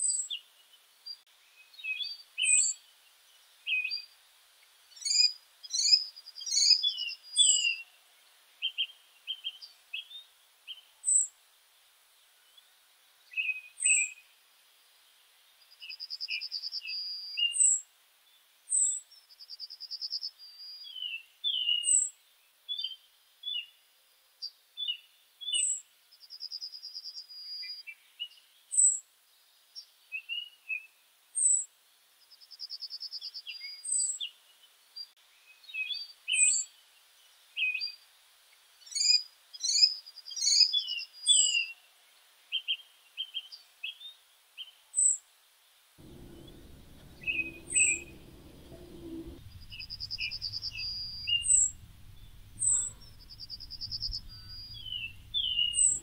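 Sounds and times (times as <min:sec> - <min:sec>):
buzzy bird trills: 0:46.0 - 0:56.0
small birds chirping: 0:46.0 - 0:56.0.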